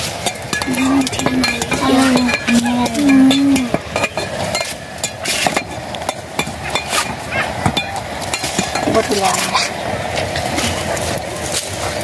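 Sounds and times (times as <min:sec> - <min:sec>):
stick knocking in metal pot: 0:00.0 - 0:09.1
fire crackling: 0:00.0 - 0:12.0.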